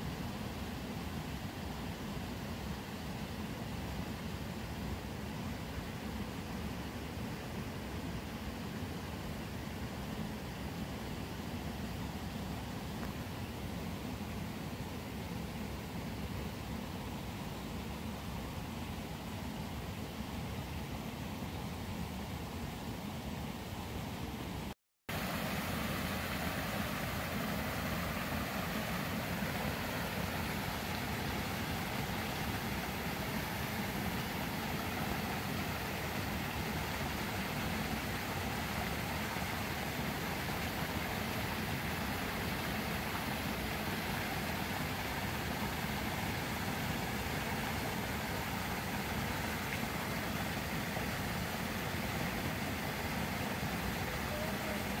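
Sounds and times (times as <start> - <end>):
water splashing into pond: 25.1 - 55.0.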